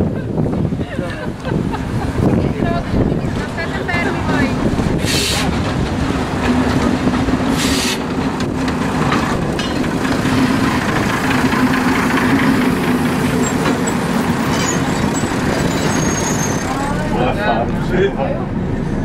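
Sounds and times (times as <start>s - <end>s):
diesel railcar idling drone: 0.0s - 19.0s
short hiss: 5.0s - 5.5s, 7.6s - 8.0s.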